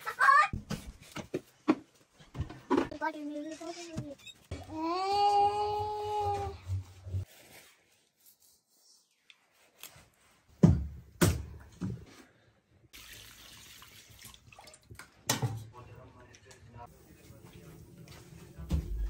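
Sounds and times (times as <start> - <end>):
water pouring over meat: 13.0 - 14.9.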